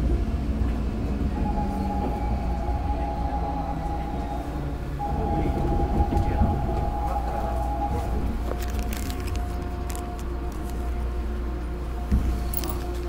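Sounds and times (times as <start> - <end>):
subway train low rumble: 0.0 - 13.0
high-pitched tone: 1.3 - 9.9.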